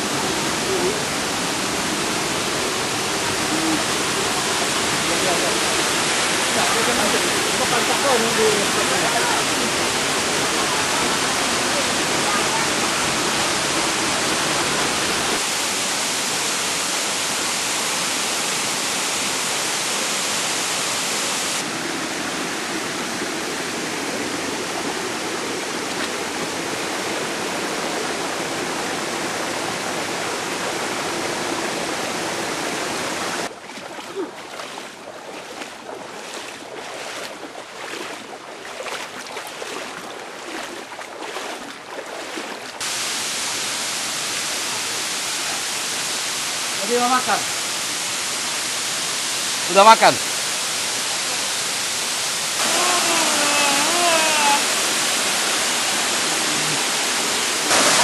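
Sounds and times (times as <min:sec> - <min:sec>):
stream and waterfall rushing: 0:00.0 - 0:58.0
water splashing: 0:33.4 - 0:43.0, 0:52.4 - 0:58.0.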